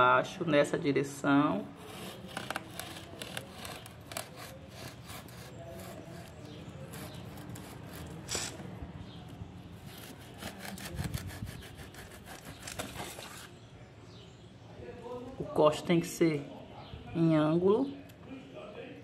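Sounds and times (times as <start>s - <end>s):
knife sawing through leaf: 1.7s - 8.6s, 9.8s - 13.5s.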